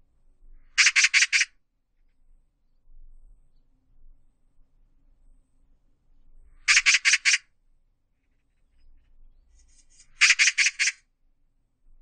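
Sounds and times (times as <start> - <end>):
magpie chattering: 0.8 - 1.5, 6.7 - 7.4, 9.7 - 11.0.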